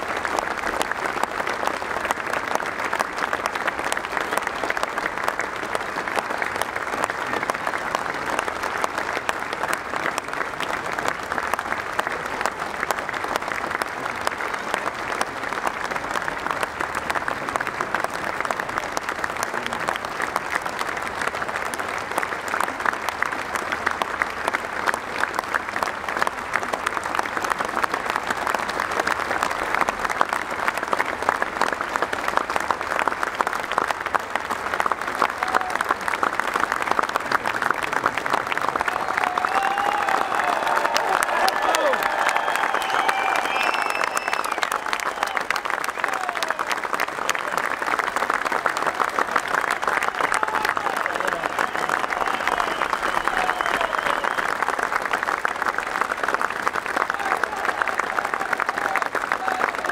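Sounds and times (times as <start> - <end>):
stadium crowd applauding: 0.0 - 59.9.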